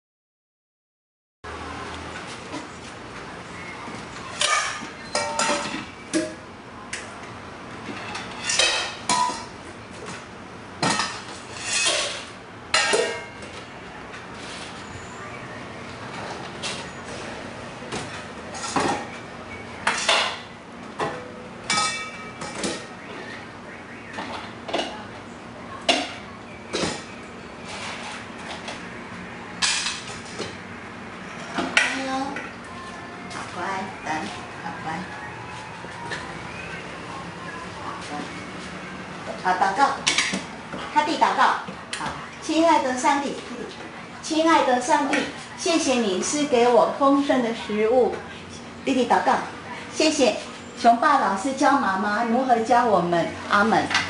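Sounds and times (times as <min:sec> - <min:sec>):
dishes clattering and clinking: 0:04.3 - 0:06.4, 0:07.8 - 0:09.6, 0:10.8 - 0:13.6, 0:17.9 - 0:19.1, 0:19.8 - 0:22.9, 0:29.6 - 0:30.6, 0:40.0 - 0:41.0.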